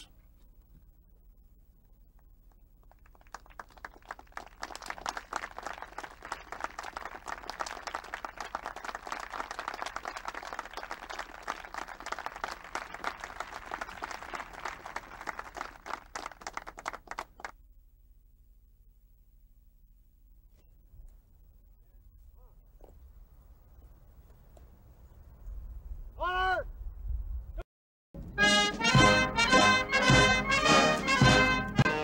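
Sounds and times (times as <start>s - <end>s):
audience applauding: 2.8s - 17.5s.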